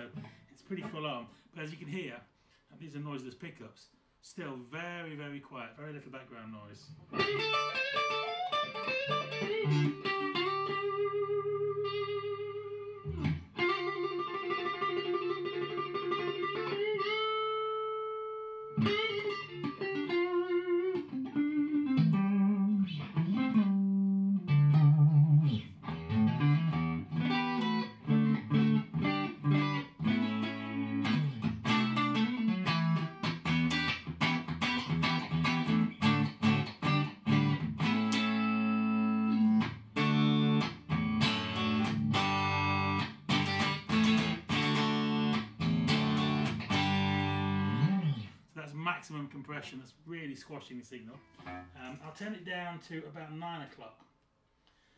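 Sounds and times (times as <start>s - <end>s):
electric guitar: 6.9s - 48.4s.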